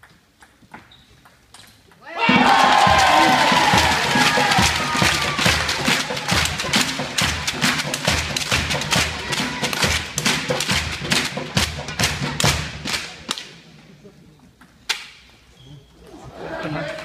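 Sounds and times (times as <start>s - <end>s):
crowd clapping in rhythm: 2.3s - 13.6s.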